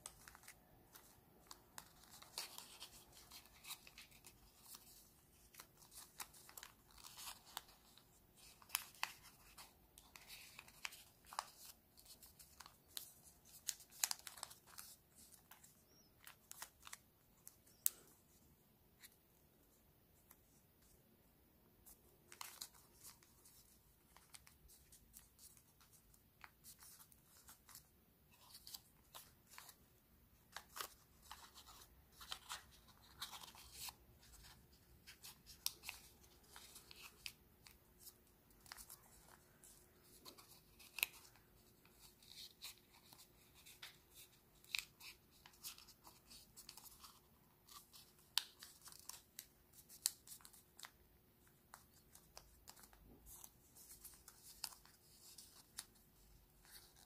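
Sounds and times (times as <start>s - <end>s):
sharp paper crackles: 0.0s - 18.1s, 30.4s - 51.0s
paper being folded and crinkling: 0.0s - 18.4s, 21.8s - 57.0s.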